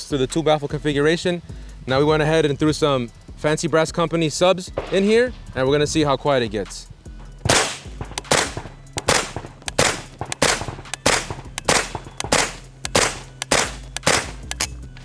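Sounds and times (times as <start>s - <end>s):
suppressed gunshots: 4.7s - 5.1s, 7.4s - 14.7s.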